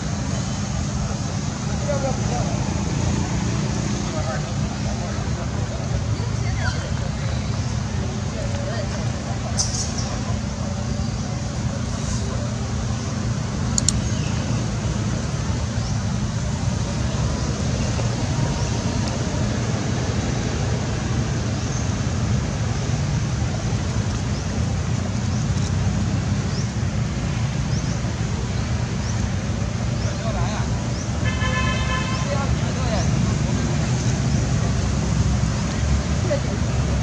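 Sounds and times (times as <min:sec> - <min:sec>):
low outdoor rumble: 0:00.0 - 0:37.0
sharp click: 0:13.8 - 0:14.1.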